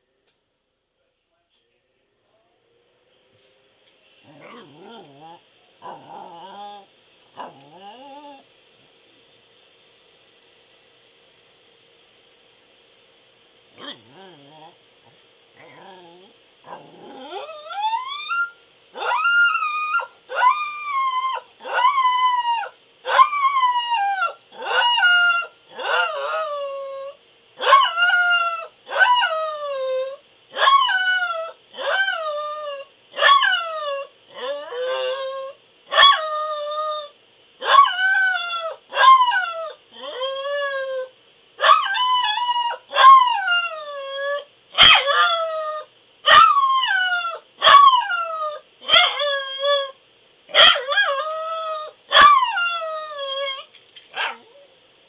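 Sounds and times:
dog howling: 4.3s - 8.4s, 15.6s - 54.7s.

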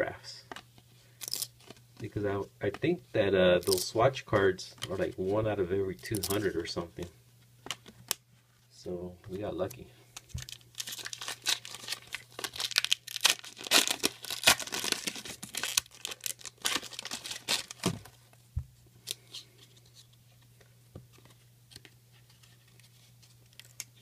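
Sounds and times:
foil wrapper crinkling: 10.2s - 18.2s.

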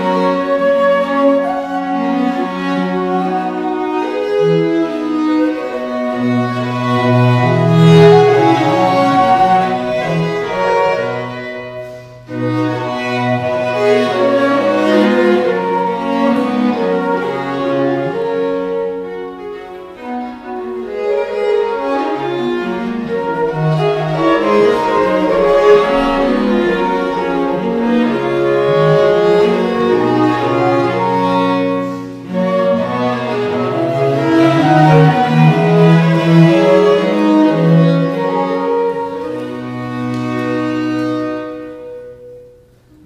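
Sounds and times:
bowed strings: 0.0s - 43.0s
flute: 0.0s - 43.0s.

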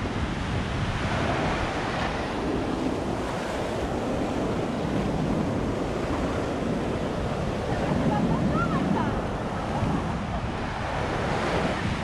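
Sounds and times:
waves washing on sandy shore: 0.0s - 12.0s
wind buffeting microphone: 0.0s - 12.0s.

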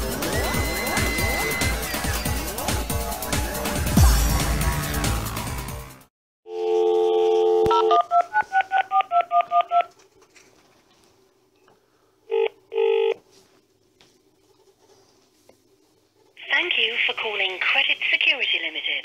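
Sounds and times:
background music: 0.0s - 6.1s
telephone ringing tone: 6.5s - 8.2s, 12.3s - 13.2s.

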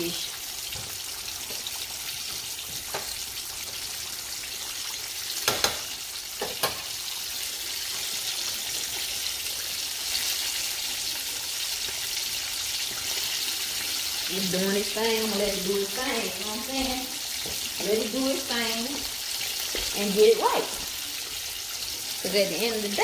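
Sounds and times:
fish sizzling in hot oil: 0.0s - 23.0s
metal tongs clacking on stovetop: 5.4s - 6.9s.

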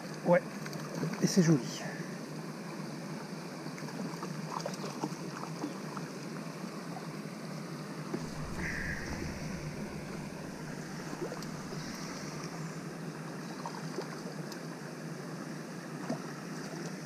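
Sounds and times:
water rushing over weir: 8.2s - 13.7s.

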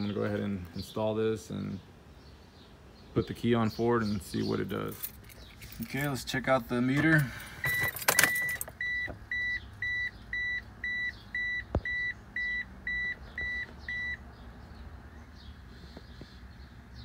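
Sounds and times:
car warning chime beeps: 7.6s - 14.2s.

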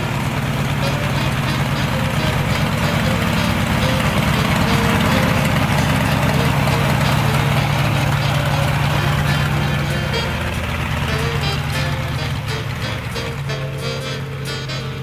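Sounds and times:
radial aircraft engine idling: 0.0s - 15.0s.

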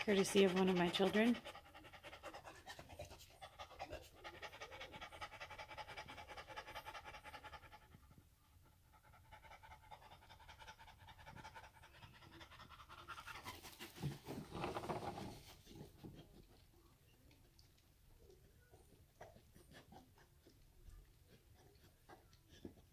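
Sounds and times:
dog panting rapidly: 0.0s - 16.9s, 18.2s - 22.9s
rustling and thumping: 13.6s - 16.2s.

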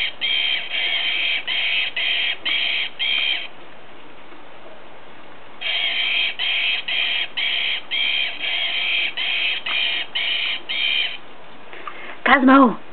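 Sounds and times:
toy squeaker squeaking: 0.0s - 3.5s, 5.6s - 11.2s.

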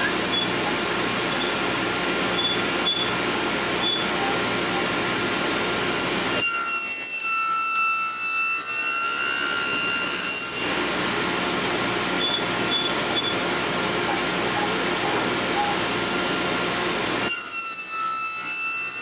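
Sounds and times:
table saw high whine: 0.0s - 19.0s
table saw running: 0.0s - 19.0s.

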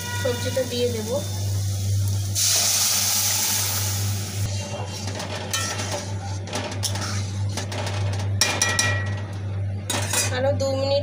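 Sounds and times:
food sizzling in hot oil: 0.0s - 4.6s
steady low hum: 0.0s - 11.0s
metal spatula scraping a pan: 4.6s - 8.7s.

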